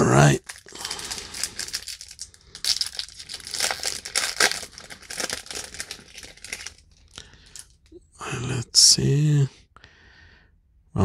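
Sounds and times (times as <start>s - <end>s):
foil wrapper crinkling and tearing: 0.4s - 7.8s.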